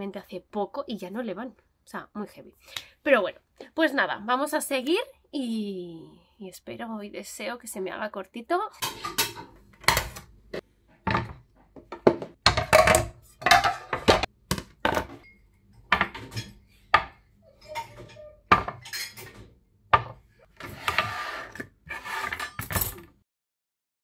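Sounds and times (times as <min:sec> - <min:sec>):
dishes and utensils clattering: 0:08.8 - 0:10.2, 0:11.0 - 0:23.2.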